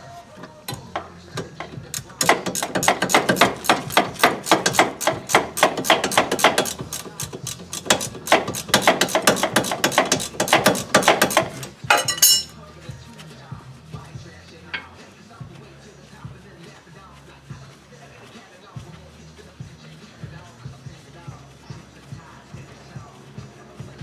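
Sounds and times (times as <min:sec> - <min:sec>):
socket ratchet clicking: 0:01.9 - 0:11.6.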